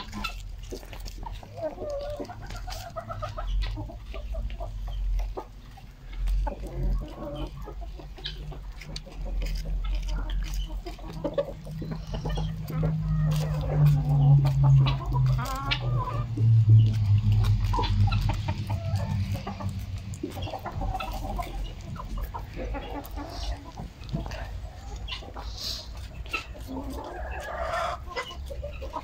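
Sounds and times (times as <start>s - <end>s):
chickens clucking: 0.0s - 29.0s
low steady drone: 12.2s - 21.4s.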